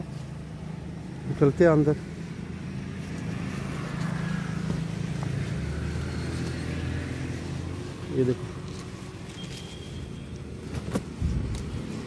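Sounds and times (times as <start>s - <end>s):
vehicle engine hum: 0.0s - 12.0s.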